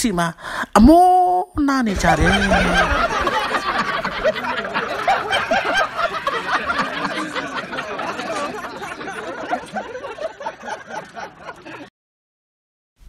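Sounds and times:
group of people laughing: 1.9 - 11.9.

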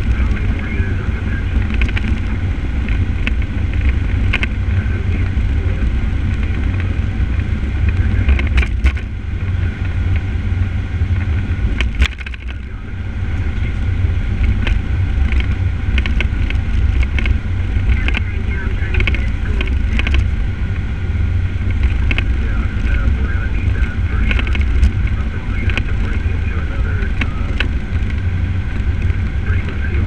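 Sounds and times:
fire engine driving rumble: 0.0 - 30.0
sharp clicks: 23.6 - 26.4.

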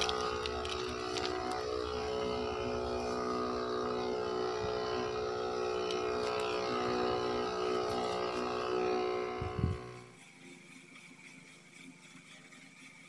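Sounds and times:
spray hissing from nozzle: 0.0 - 9.5
sprayer motor hum: 0.0 - 12.6.

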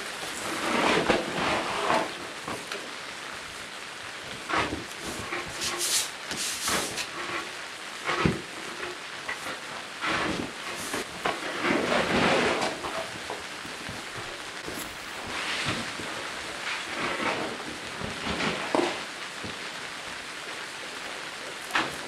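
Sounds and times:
cardboard and paper rustling: 4.3 - 7.5, 8.1 - 19.7.

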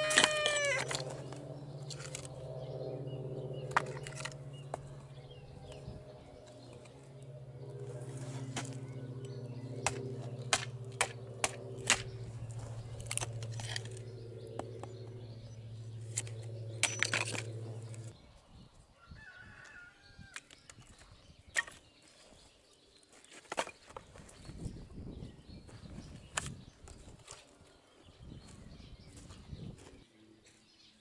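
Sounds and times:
steady low hum: 0.5 - 18.4
hatchet chopping kindling: 9.8 - 14.0, 16.1 - 18.1.

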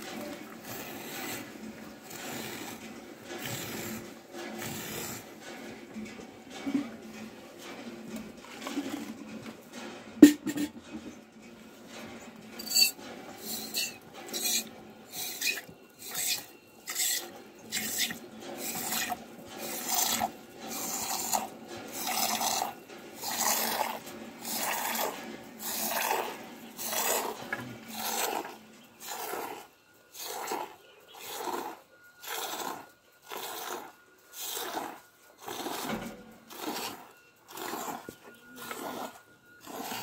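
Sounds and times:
milk squirting into a steel bowl: 13.4 - 29.6, 36.5 - 38.0.

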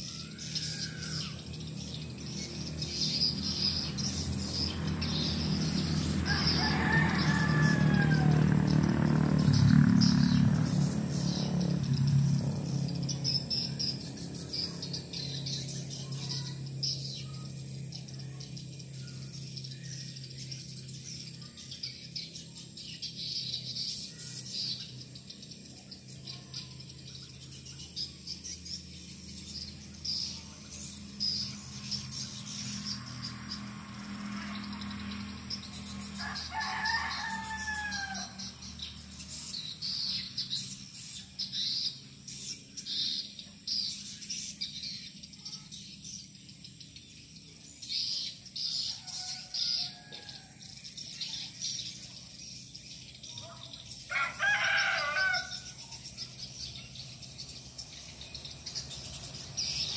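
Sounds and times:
rooster crowing: 6.2 - 8.8, 36.2 - 38.5, 48.8 - 50.7, 54.1 - 55.8.

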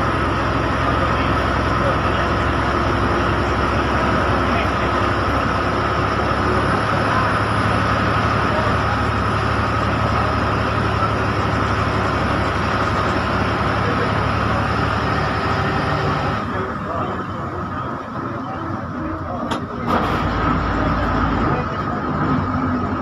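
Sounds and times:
bus engine running: 0.0 - 23.0
tyres on wet road: 0.0 - 23.0.

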